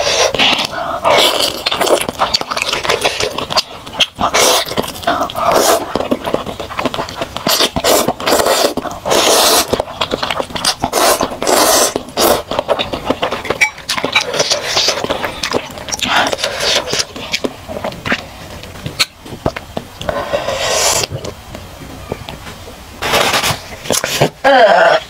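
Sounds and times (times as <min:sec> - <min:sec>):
slurping noodles: 0:00.0 - 0:18.3, 0:20.0 - 0:21.2
mouth clicks and smacks: 0:00.0 - 0:22.8
chewing: 0:00.0 - 0:24.3.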